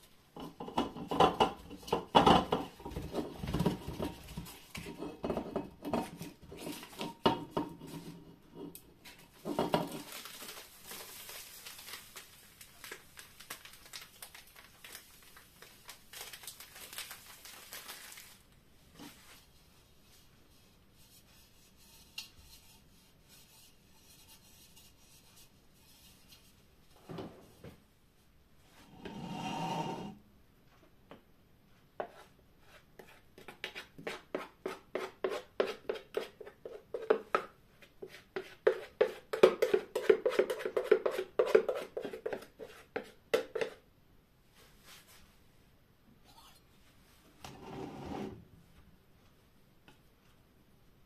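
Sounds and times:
utensil scraping plastic bowl: 28.9 - 30.2, 38.0 - 43.8, 47.4 - 48.4.

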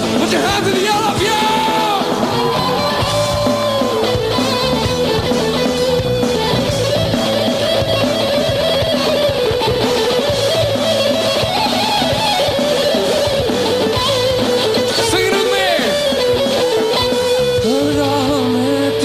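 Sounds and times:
electric guitar lead line: 0.0 - 19.0
rock band bass and drums: 0.0 - 19.0.

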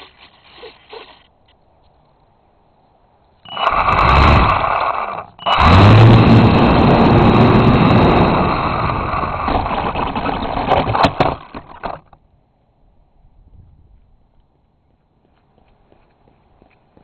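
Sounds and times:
model airplane motor and propeller: 3.5 - 12.2.

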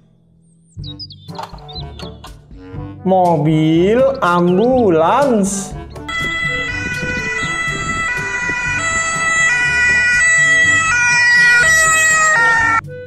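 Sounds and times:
two-tone ambulance siren: 6.1 - 13.0.

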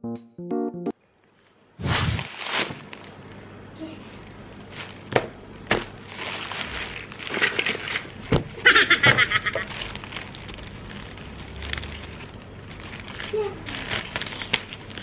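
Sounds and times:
plastic bag crinkling and rustling: 2.2 - 3.4, 4.0 - 15.0
rapid crackling of plastic: 2.3 - 15.0.

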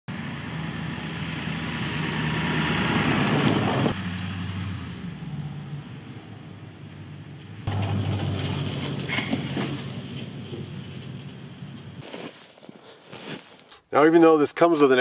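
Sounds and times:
engine running steadily: 0.1 - 12.0.

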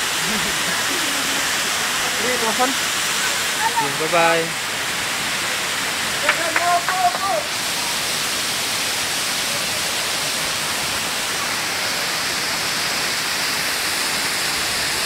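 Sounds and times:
static hiss: 0.0 - 15.0.

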